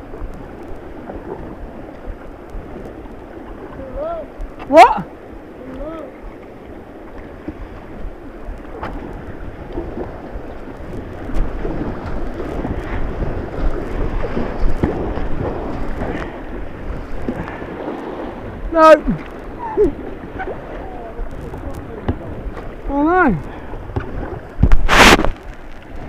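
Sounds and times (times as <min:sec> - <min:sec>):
water buffeting microphone: 0:00.0 - 0:26.0
white-water river rushing: 0:03.4 - 0:06.8, 0:10.8 - 0:23.8.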